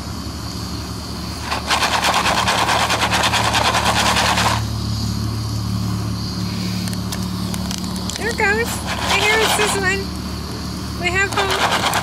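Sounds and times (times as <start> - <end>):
steady low hum: 0.0 - 12.0
foil pan rattling on burner: 1.5 - 4.6, 11.3 - 12.0.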